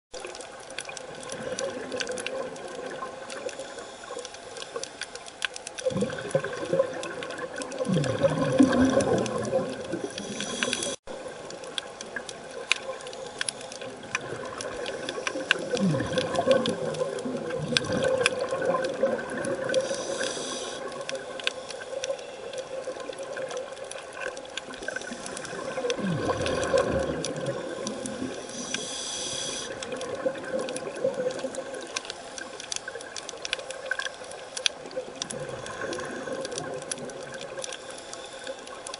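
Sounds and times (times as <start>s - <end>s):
faint crackling clicks: 0.1s - 38.9s
regulator bubbles gurgling underwater: 0.1s - 38.9s
inhalation hiss: 3.4s - 5.2s, 9.9s - 11.0s, 19.8s - 22.5s, 27.9s - 29.9s, 37.8s - 38.7s.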